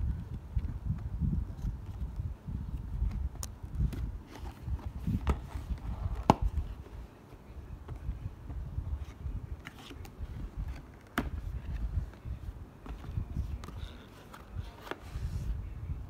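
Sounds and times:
cardboard rubbing and scraping: 12.8 - 15.6.

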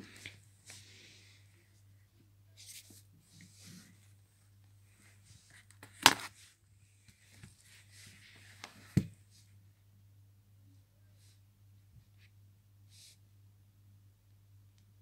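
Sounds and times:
faint rustling and handling: 0.0 - 9.6
low steady hum: 0.0 - 15.0.

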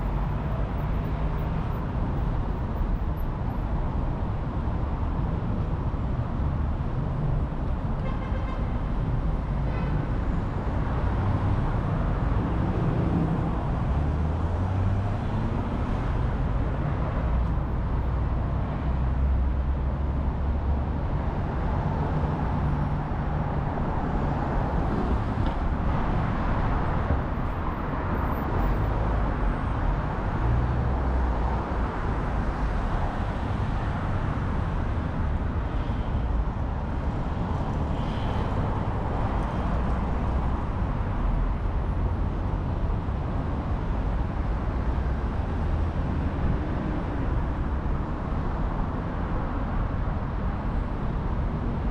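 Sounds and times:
road noise: 0.0 - 51.9
passing vehicle engines: 8.9 - 51.9.

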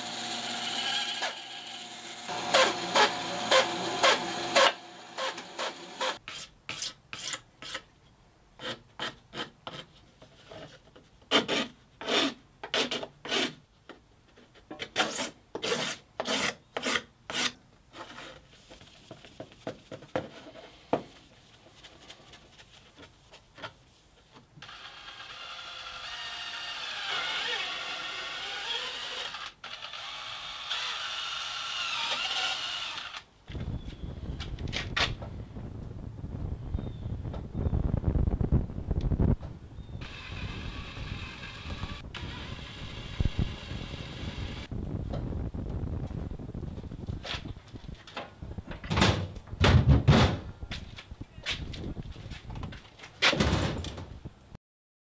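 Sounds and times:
cordless drill running: 0.0 - 6.2, 24.6 - 33.3, 40.0 - 44.7
band saw cutting plastic pipe: 0.0 - 7.8.

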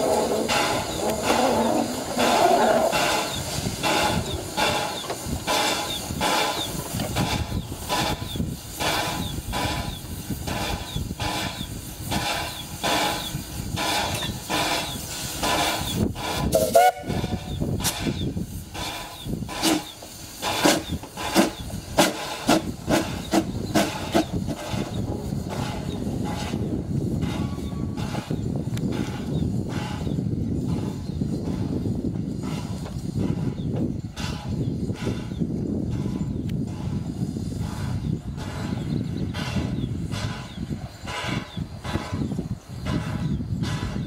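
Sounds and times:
steam hiss: 0.0 - 44.0
steam locomotive chuffing: 0.0 - 44.0
steam whistle toot: 16.5 - 17.6.

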